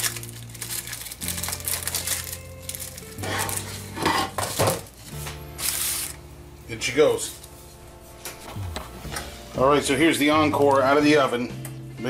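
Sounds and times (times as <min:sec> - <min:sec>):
plastic film crinkling: 0:00.0 - 0:06.2.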